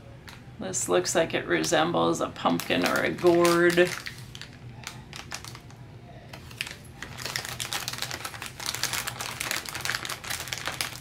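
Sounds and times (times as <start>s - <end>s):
plastic pieces clicking in bags: 2.6s - 5.8s, 6.4s - 11.0s.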